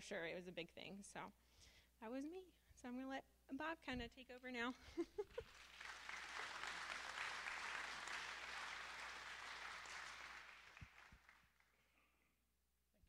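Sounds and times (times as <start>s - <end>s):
audience applauding: 5.3s - 11.9s.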